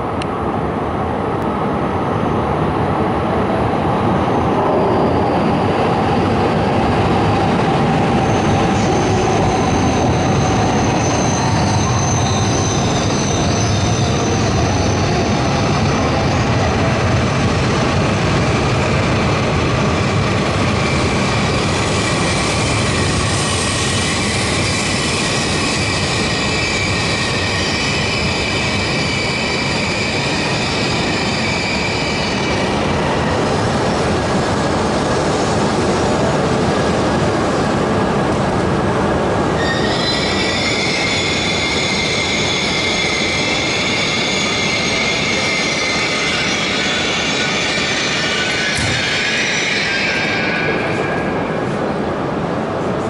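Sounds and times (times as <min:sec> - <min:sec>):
low squeal: 0:04.2 - 0:17.9, 0:20.8 - 0:33.6, 0:39.5 - 0:52.1
high squealing tones: 0:39.6 - 0:51.4.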